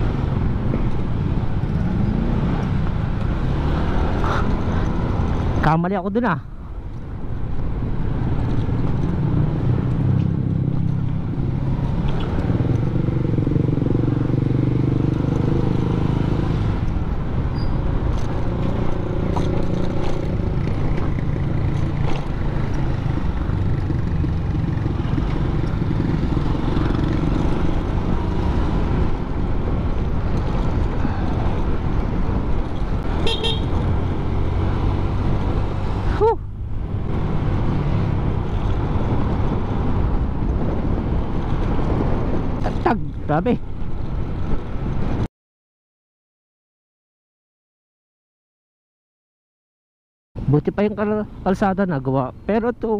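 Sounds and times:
road and wind noise: 0.0s - 45.3s, 50.4s - 52.9s
scooter engine humming: 17.0s - 38.8s
horn toot: 33.2s - 33.8s.

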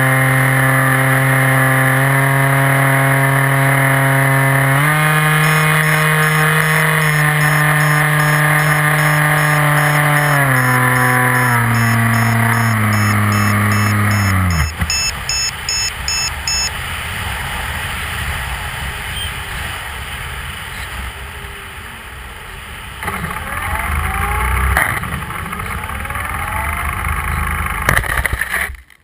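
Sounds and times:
model plane motor whine: 0.0s - 15.1s, 23.0s - 27.6s.

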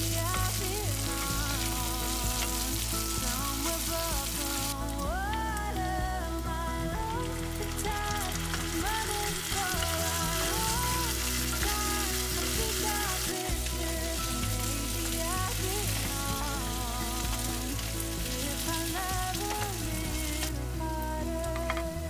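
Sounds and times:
onions sizzling in hot oil: 0.0s - 5.6s, 7.0s - 20.6s
instrumental background music: 0.0s - 22.0s.

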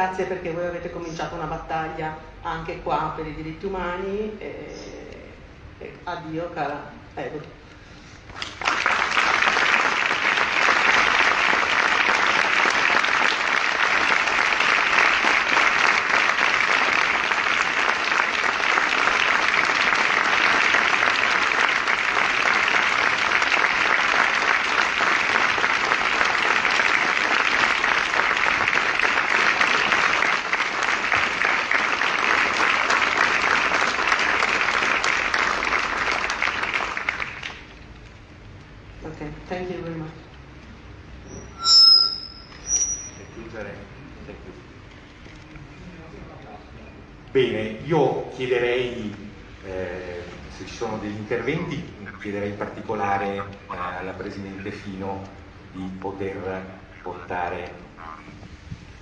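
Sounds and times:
crowd applauding: 8.4s - 37.8s.

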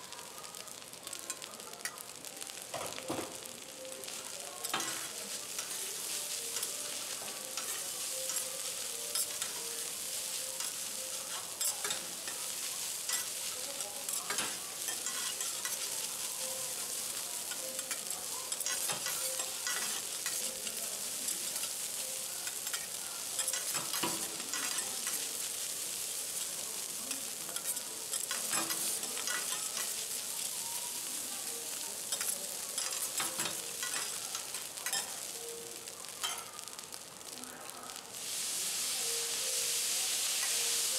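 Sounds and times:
rice sizzling on a griddle: 0.0s - 40.9s
metal spatulas scraping griddle: 14.0s - 16.0s, 27.6s - 30.0s
spatula clicks on hot plate: 17.5s - 20.4s.

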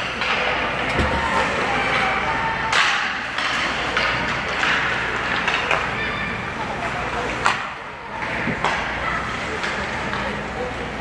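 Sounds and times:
hockey sticks clacking on puck: 2.6s - 6.0s, 7.2s - 10.6s.

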